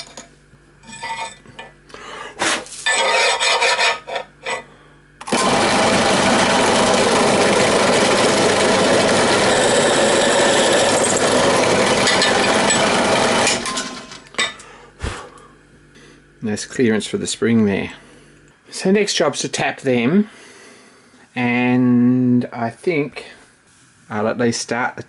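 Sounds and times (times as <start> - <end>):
drill bit grinding through metal: 5.2 - 14.1
drill press running: 5.2 - 14.4.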